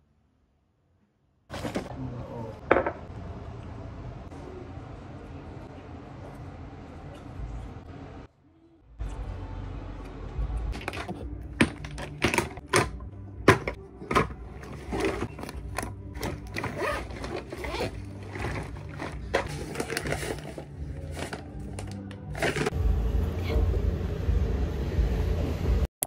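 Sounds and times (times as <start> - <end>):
toiletry bottles clicking and rustling: 10.8 - 22.7.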